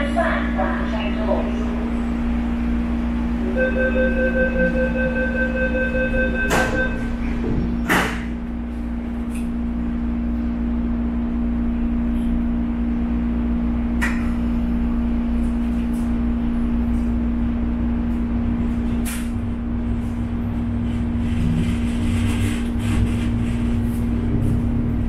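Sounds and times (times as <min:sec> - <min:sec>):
train carriage hum and hiss: 0:00.0 - 0:25.0.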